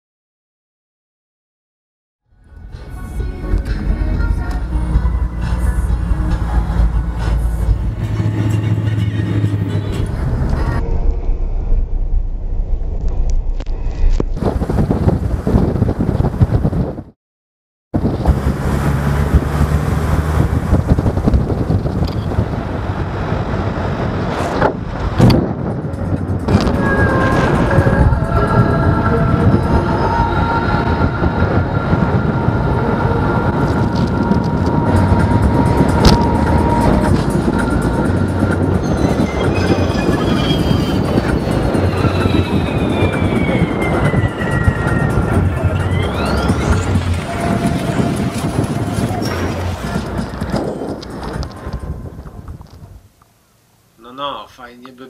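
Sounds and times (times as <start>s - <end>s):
vehicle engine and road noise: 2.3s - 17.2s, 18.0s - 55.0s.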